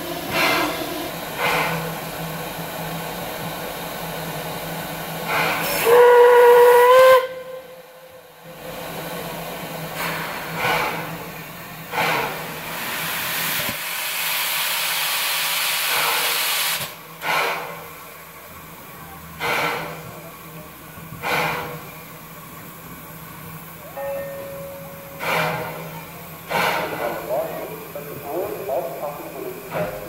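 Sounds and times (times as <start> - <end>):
steam hissing: 0.0 - 7.2, 8.5 - 23.8, 25.0 - 30.0
steam exhaust chuffs: 0.0 - 7.5, 8.6 - 23.6, 25.1 - 30.0
steam locomotive whistle: 5.6 - 8.2.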